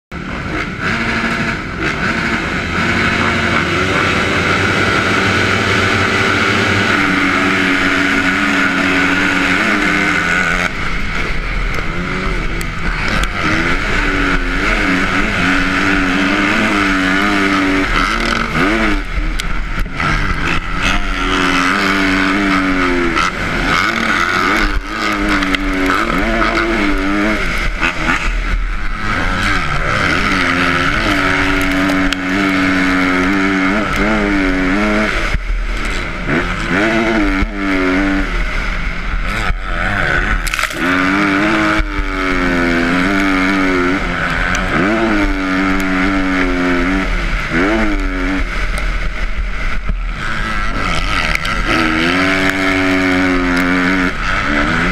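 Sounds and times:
motocross bike engine revving: 0:00.1 - 0:54.9
other motorbikes running nearby: 0:00.1 - 0:54.9.

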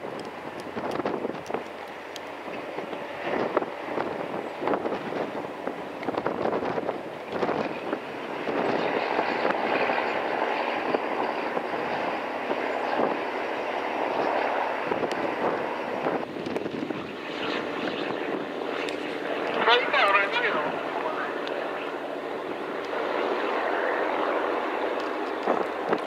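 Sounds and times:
boat engines droning: 0:00.0 - 0:26.0
wind buffeting microphone: 0:00.0 - 0:26.0.

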